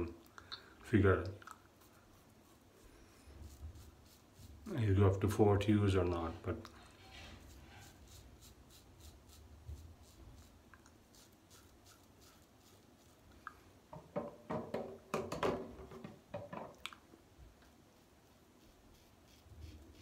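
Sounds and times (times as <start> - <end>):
razor scraping stubble: 6.1 - 13.2, 18.6 - 20.0.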